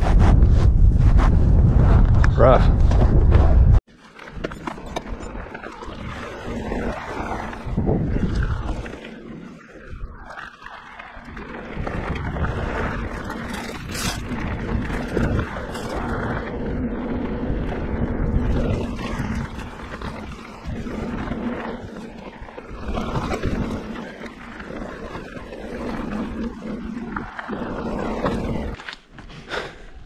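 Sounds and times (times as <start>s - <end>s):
wind rushing over microphone: 0.0s - 3.8s, 5.9s - 9.1s, 11.2s - 24.0s.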